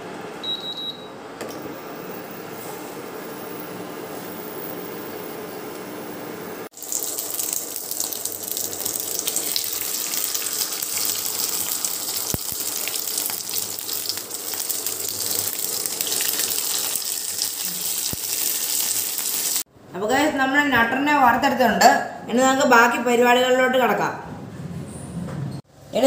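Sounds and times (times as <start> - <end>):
fish sizzling in hot oil: 6.7 - 19.6.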